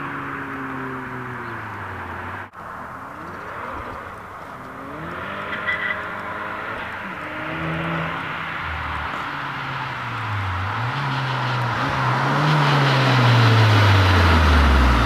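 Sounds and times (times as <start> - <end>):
car engine at full throttle: 0.0 - 15.0.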